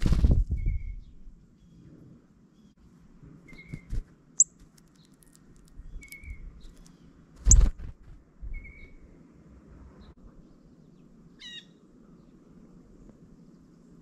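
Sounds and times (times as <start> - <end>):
flutter of wings: 0.0 - 0.8, 3.4 - 8.3.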